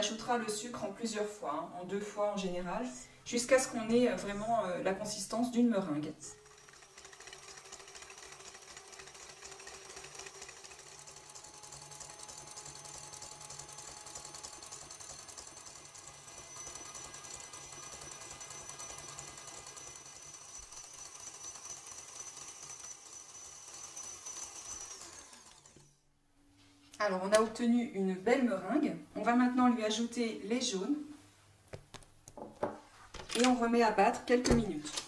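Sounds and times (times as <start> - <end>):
stand mixer motor hum: 6.4 - 26.0.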